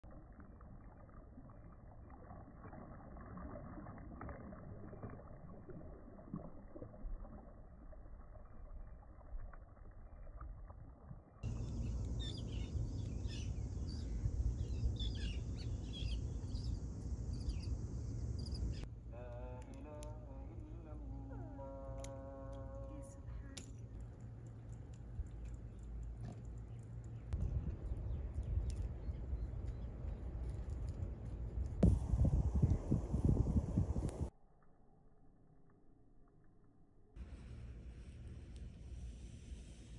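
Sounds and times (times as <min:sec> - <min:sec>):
deep surf noise: 0:31.8 - 0:34.3.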